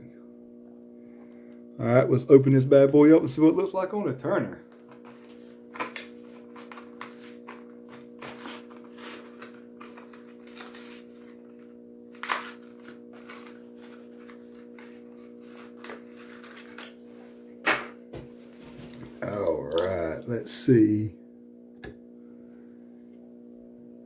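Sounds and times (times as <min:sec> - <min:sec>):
steady hum: 0:00.0 - 0:24.0
plastic packaging crinkling: 0:04.7 - 0:17.0.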